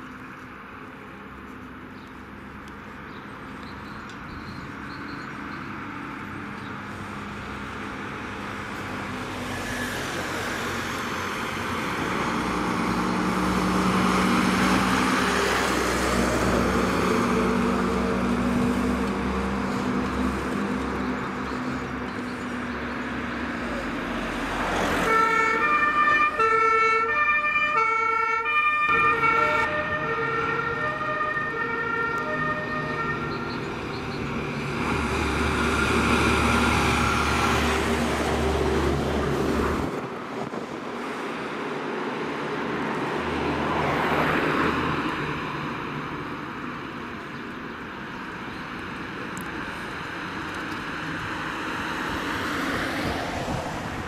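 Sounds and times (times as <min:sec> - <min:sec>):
diesel trucks driving past: 0:00.0 - 0:54.0
two-tone emergency siren: 0:25.0 - 0:34.1.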